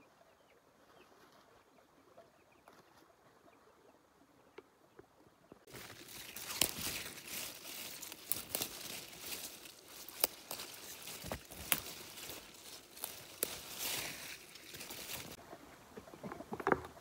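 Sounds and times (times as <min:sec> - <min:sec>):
rustling and crinkling: 0:05.6 - 0:17.0.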